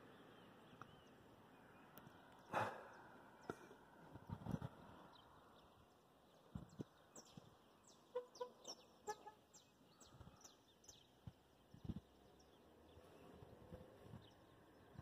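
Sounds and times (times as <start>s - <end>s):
low clucking bird calls: 6.4s - 15.0s.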